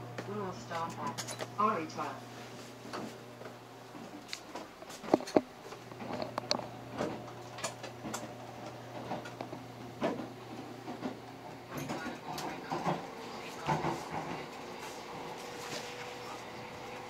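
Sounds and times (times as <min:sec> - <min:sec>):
train interior hum: 0:10.0 - 0:17.0.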